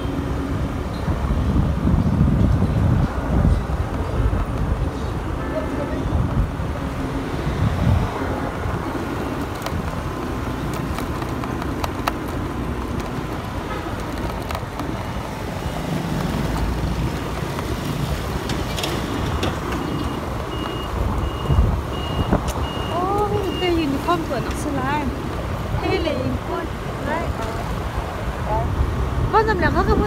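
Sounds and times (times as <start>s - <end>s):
passing traffic: 0.0s - 30.0s
vehicle engine and road noise: 0.0s - 30.0s.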